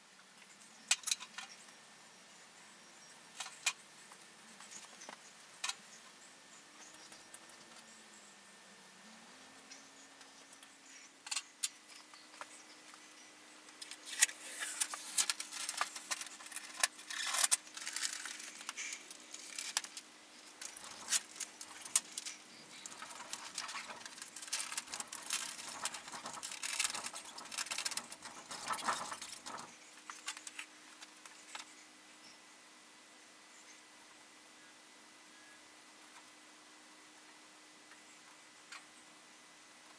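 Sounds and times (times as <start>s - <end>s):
faint steady hum: 0.0s - 39.9s
plastic sheet crinkling: 13.8s - 31.6s.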